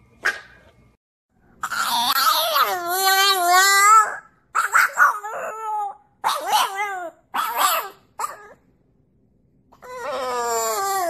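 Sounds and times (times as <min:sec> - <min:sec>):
dog yowling: 0:01.6 - 0:08.6, 0:09.7 - 0:11.0
dog crying falling in pitch: 0:01.8 - 0:08.6, 0:09.7 - 0:11.0.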